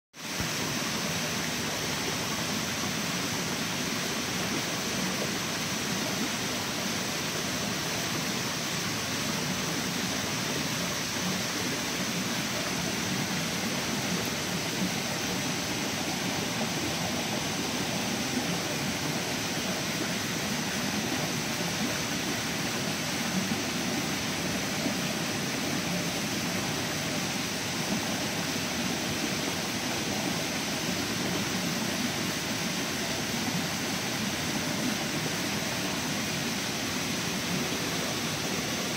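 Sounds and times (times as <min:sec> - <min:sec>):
stream rushing over rocks: 0:00.2 - 0:38.9.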